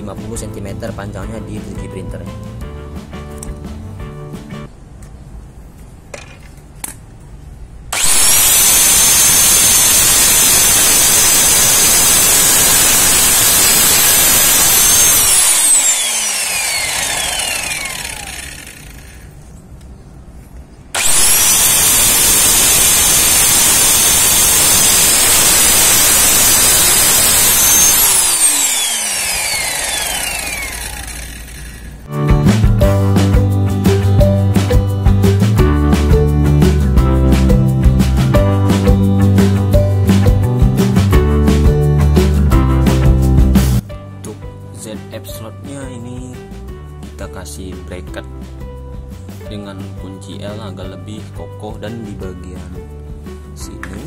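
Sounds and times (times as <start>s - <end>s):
miter saw motor whining: 7.9s - 19.4s, 21.0s - 32.0s.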